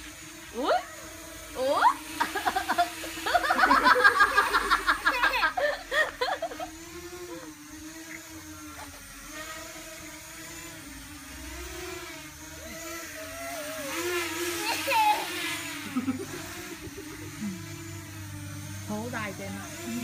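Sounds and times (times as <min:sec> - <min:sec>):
drone propellers humming: 0:00.0 - 0:20.0
person laughing excitedly: 0:02.2 - 0:06.7, 0:14.6 - 0:17.7.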